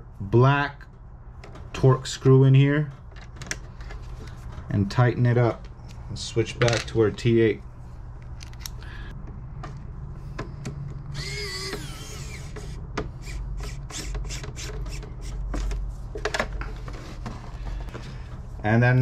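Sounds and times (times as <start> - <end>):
electric screwdriver whirring: 11.1 - 15.4.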